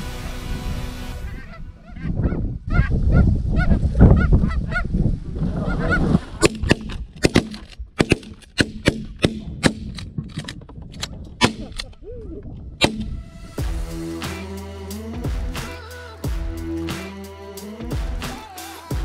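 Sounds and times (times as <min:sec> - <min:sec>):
geese honking: 0:01.0 - 0:02.9
shotgun blasts: 0:06.4 - 0:10.0, 0:12.8 - 0:13.2.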